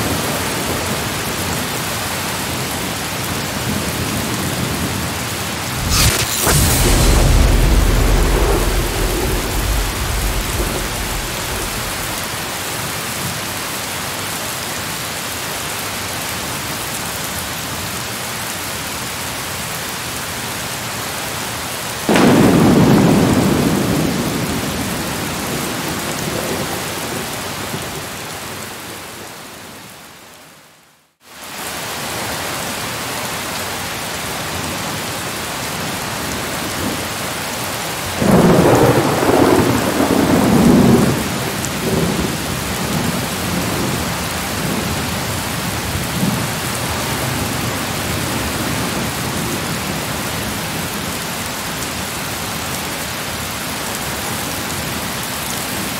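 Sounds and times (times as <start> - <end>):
steady rain: 0.0 - 55.9
rolling thunder: 5.7 - 12.6, 22.1 - 26.6.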